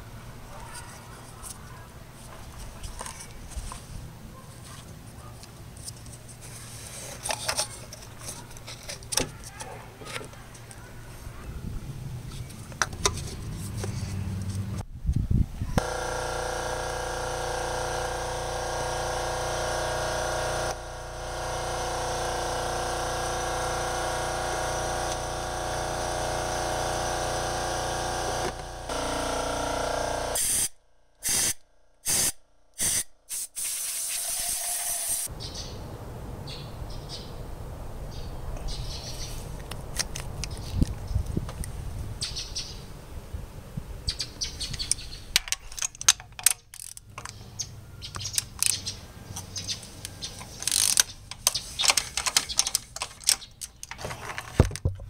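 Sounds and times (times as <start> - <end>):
mechanical hum: 5.2 - 32.9
compressed air hissing from blow gun: 30.4 - 35.3
metal tools clicking: 44.7 - 47.4, 48.1 - 54.0.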